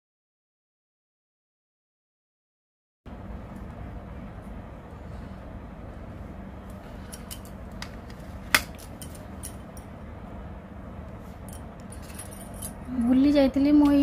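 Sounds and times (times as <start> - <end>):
steady low hum: 3.1 - 14.0.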